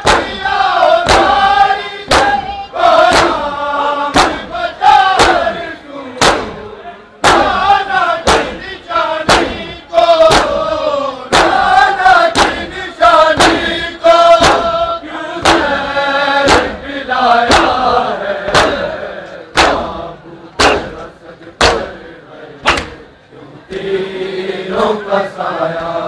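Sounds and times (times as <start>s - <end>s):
chest beating slaps: 0.0s - 1.5s, 2.1s - 4.5s, 5.2s - 5.6s, 6.2s - 6.6s, 7.2s - 10.7s, 11.3s - 11.7s, 12.3s - 13.8s, 14.4s - 14.8s, 15.4s - 15.8s, 16.4s - 16.8s, 17.5s - 17.9s, 18.5s - 18.9s, 19.5s - 20.0s, 20.6s - 22.0s, 22.6s - 23.1s
men chanting in unison: 0.0s - 26.0s.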